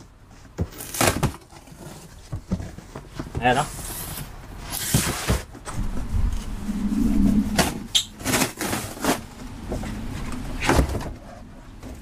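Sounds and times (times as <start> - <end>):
cardboard and plastic rustling: 0.0 - 5.8, 8.2 - 12.0
brief low hum: 5.7 - 8.3.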